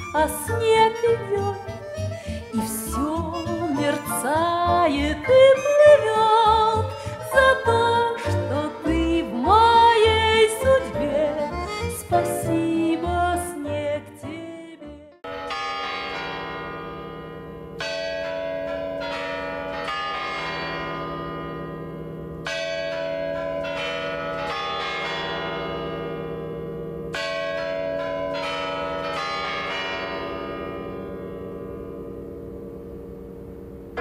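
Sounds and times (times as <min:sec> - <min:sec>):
clock bells chiming melody: 0:22.4 - 0:31.8.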